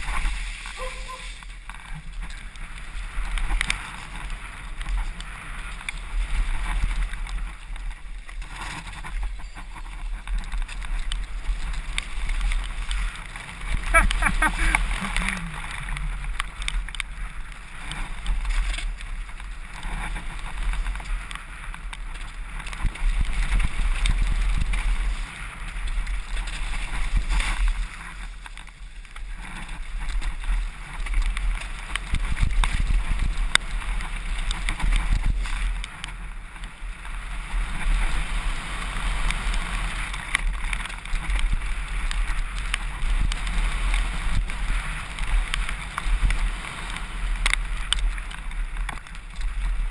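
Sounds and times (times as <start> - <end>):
bike rattling over rough ground: 0.0 - 49.9.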